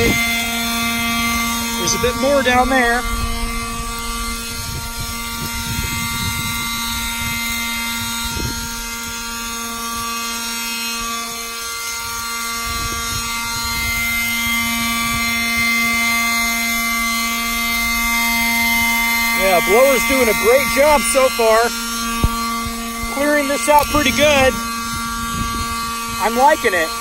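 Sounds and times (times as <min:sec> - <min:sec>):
rumble of rushing air: 0:00.0 - 0:10.0
leaf blower whine: 0:00.0 - 0:27.0.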